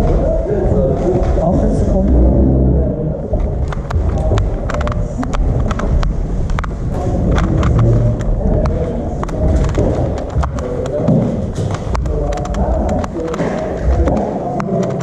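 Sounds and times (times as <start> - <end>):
low room noise rumble: 0.0 - 15.0
speedcube layers clicking: 3.6 - 11.0.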